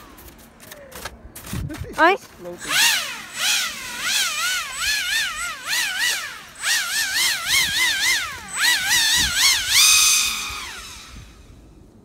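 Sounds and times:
airboat motor and propeller whining: 2.7 - 11.6.

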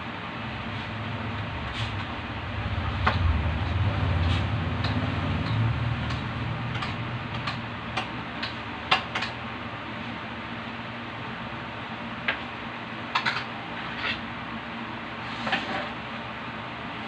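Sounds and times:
low hum: 0.0 - 8.4.

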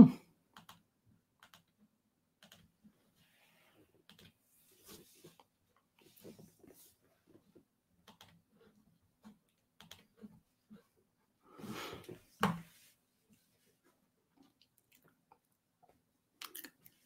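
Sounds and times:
keyboard and mouse clicking: 0.5 - 1.8, 2.4 - 2.7, 4.1 - 4.4, 8.0 - 8.4, 9.8 - 10.1
rustling noise: 4.5 - 7.6.

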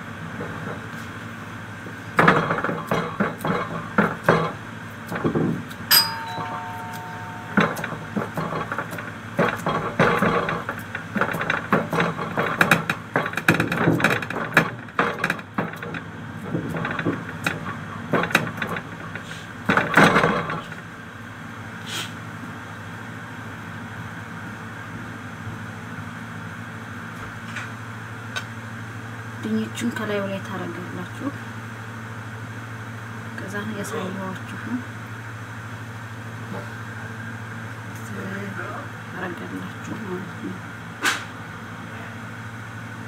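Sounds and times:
kitchen clatter and knocks: 5.2 - 15.9
two-note electronic chime: 5.9 - 8.2
low hum: 5.9 - 9.2.

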